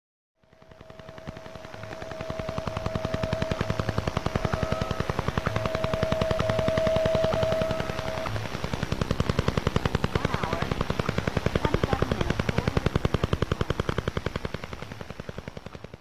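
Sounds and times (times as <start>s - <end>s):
rapid radio pulse tapping: 0.4s - 16.0s
steady whistle tone: 0.6s - 8.6s.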